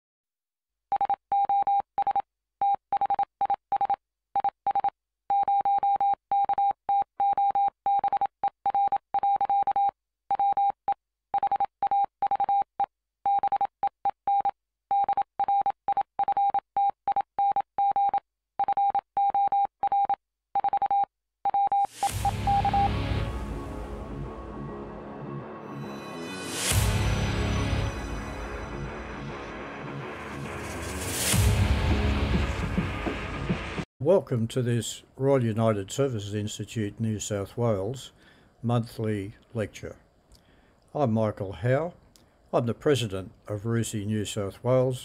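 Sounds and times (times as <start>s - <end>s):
morse code beeps: 0.9s - 10.8s, 11.4s - 12.7s, 13.3s - 13.7s, 14.3s - 23.1s
music: 22.0s - 33.8s.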